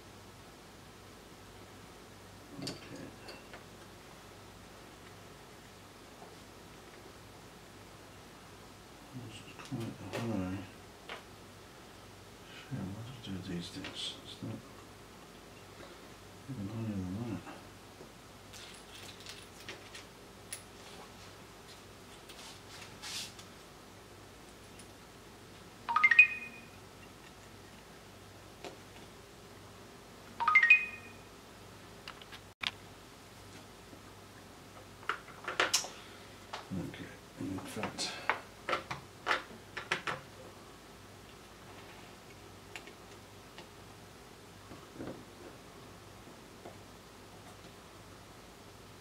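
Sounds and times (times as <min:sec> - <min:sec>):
electronic parts clicking and rustling: 0:18.5 - 0:20.8.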